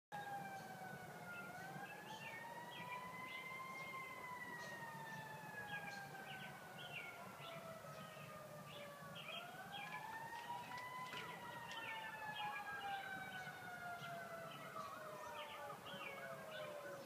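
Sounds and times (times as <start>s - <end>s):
distant siren wailing: 0.1s - 17.0s.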